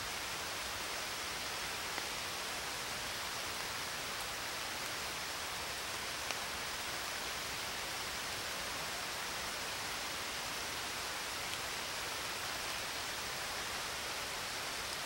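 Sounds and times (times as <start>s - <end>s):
steady hiss: 0.0s - 15.0s
faint ticks: 6.2s - 6.5s.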